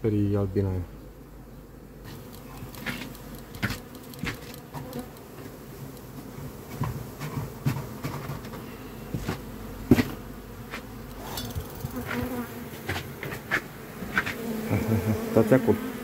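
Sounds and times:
honeybees buzzing: 0.0 - 16.0
knocks and clicks of hive gear: 2.3 - 6.2.

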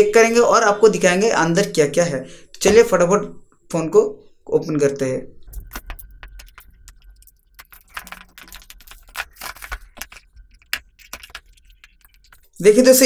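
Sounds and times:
box clicks and crackles: 5.4 - 12.6.

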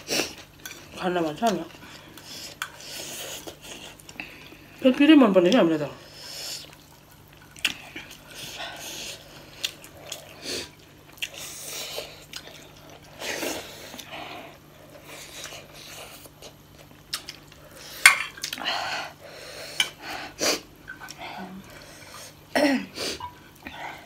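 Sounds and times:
chewing and lip smacking: 6.6 - 13.2, 15.0 - 18.6.

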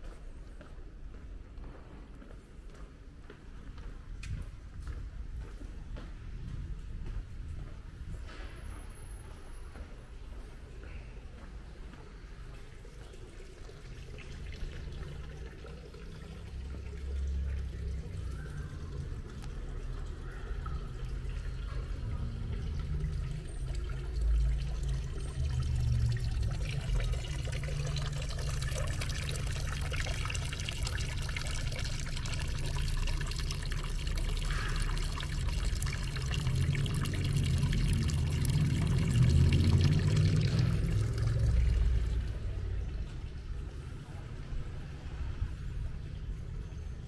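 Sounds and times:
running splashing water: 12.8 - 42.6
low rumble: 34.5 - 44.0.

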